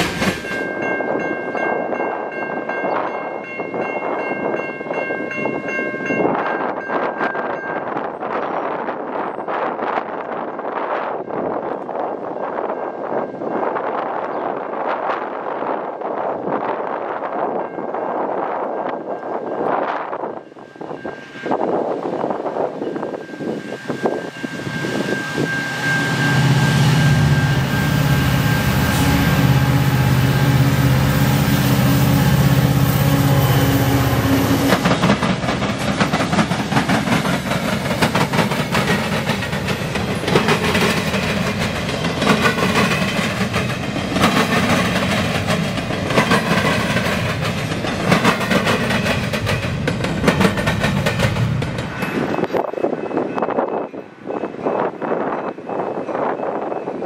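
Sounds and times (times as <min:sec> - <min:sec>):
diesel locomotive engines droning: 0:00.0 - 0:57.0
freight cars rolling clatter: 0:34.0 - 0:52.8
wheels clicking over rail joints: 0:34.6 - 0:52.8.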